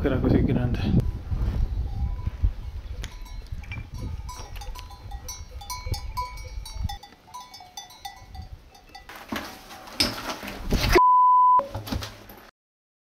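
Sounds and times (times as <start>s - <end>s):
livestock bells clinking: 1.9s - 9.3s.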